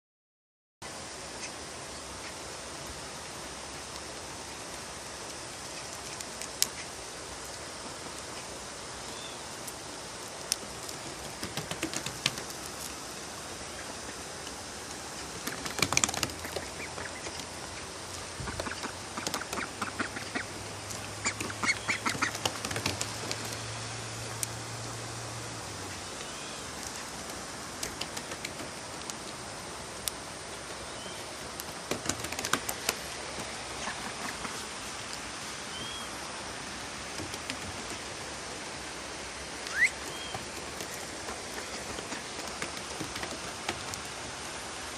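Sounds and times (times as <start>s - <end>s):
background hiss: 0.8s - 44.9s
ducks quacking: 18.4s - 20.6s, 21.2s - 22.4s.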